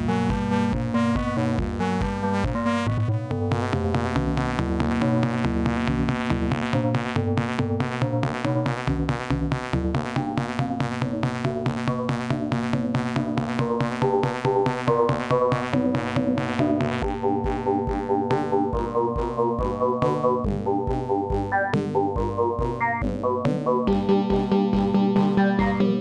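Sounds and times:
deep pulsing bass: 0.0 - 14.2, 14.9 - 26.0
drum-machine beat: 0.0 - 26.0
synthesizer notes: 14.8 - 26.0.

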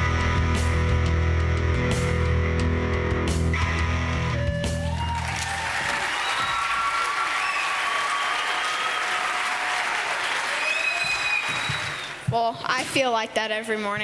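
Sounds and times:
audience applauding: 4.3 - 12.3.

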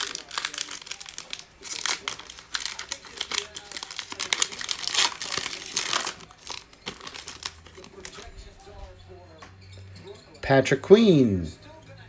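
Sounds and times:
foil wrapper crinkling and tearing: 0.0 - 8.3.

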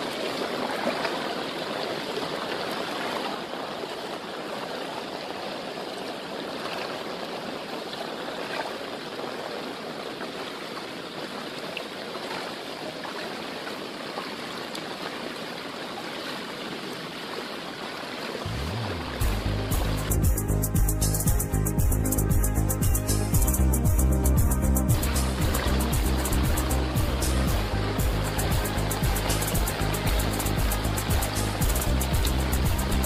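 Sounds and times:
heavy rain on floodwater: 0.0 - 20.2, 24.9 - 33.0
music track: 18.5 - 33.0.

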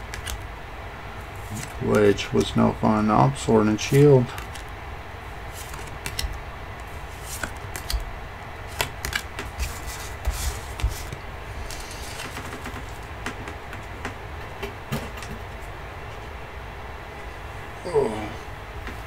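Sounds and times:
trading cards clicking and tapping: 5.6 - 6.4, 7.2 - 8.1, 8.7 - 15.4.

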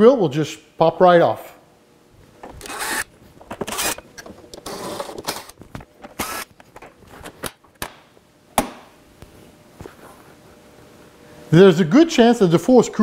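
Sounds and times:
screwdriver scraping turns: 2.6 - 5.6.

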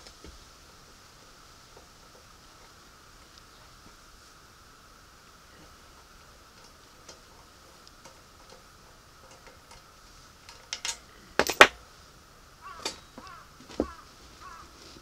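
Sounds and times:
metal scraping clicks: 6.1 - 11.8
metal parts clinking: 10.5 - 11.8.

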